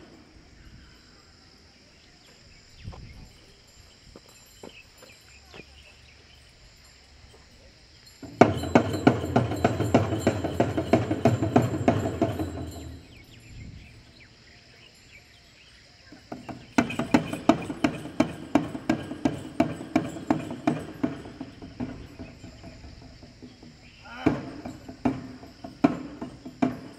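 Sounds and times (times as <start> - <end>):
jingling bells: 2.8 - 26.9
frame drums beaten quickly: 8.2 - 13.3, 16.1 - 26.9.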